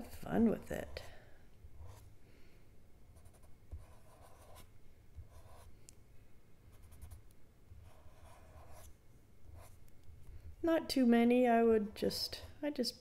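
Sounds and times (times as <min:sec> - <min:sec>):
marker scratching on film: 0:03.2 - 0:05.7, 0:06.7 - 0:07.2, 0:07.8 - 0:08.9.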